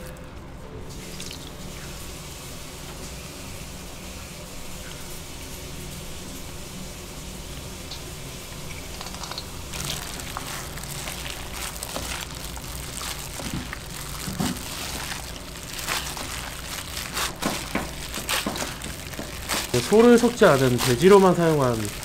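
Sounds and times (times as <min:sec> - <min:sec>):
utensils and food handled: 0:08.8 - 0:22.0.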